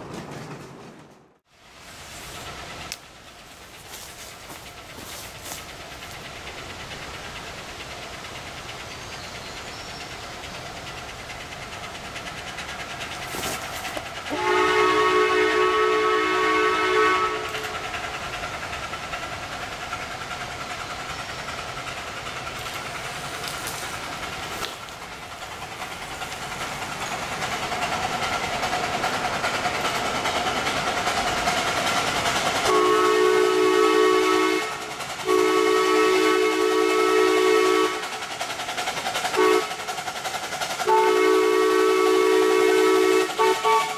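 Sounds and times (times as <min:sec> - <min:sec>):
steam locomotive running: 0:00.0 - 0:43.9
steam whistle chord: 0:14.3 - 0:17.8, 0:32.7 - 0:38.0, 0:40.9 - 0:43.9.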